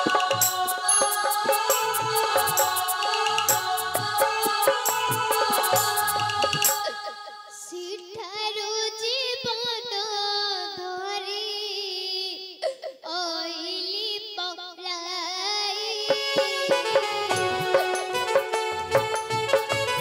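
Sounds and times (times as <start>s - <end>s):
drummed instrumental music: 0.0s - 7.0s, 16.1s - 20.0s
woman singing with vibrato: 0.0s - 18.2s.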